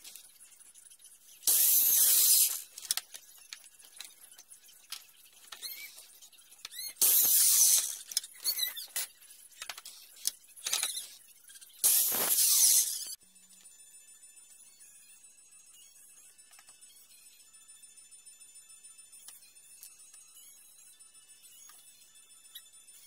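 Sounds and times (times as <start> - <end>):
saw motor whining: 1.4 - 3.0, 6.7 - 9.1, 9.9 - 13.2
saw blade cutting through wood: 1.5 - 2.8, 7.0 - 8.7, 11.8 - 13.2.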